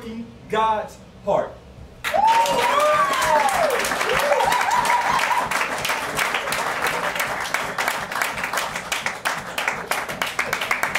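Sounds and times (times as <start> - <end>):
audience applauding: 2.0 - 10.9
person whooping: 2.1 - 5.8.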